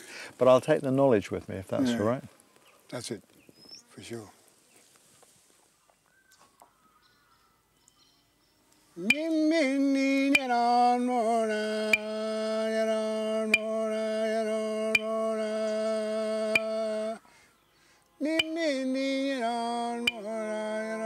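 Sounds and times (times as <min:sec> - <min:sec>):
person chant-like singing: 0:09.0 - 0:17.3, 0:18.2 - 0:21.0.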